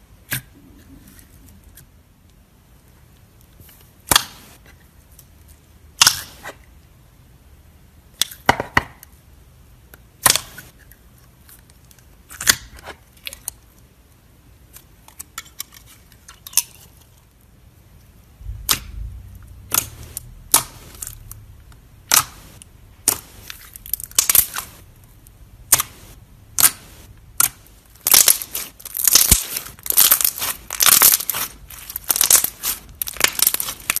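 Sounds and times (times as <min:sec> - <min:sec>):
slime squeezed with sticky pops: 0:22.0 - 0:24.8, 0:25.7 - 0:34.0.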